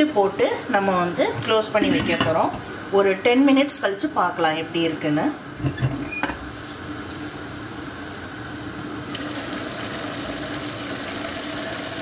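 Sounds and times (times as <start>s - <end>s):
pot boiling hard: 8.9s - 12.0s.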